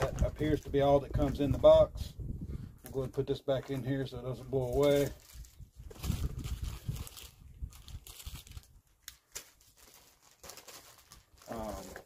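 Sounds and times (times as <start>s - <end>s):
paper rustling: 4.5s - 12.0s.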